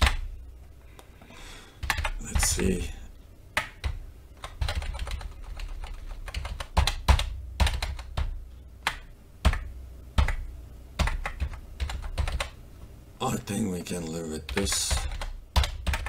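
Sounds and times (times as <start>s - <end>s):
typing on computer keyboard: 1.8s - 2.5s, 3.6s - 10.4s, 11.0s - 12.6s, 14.5s - 16.0s.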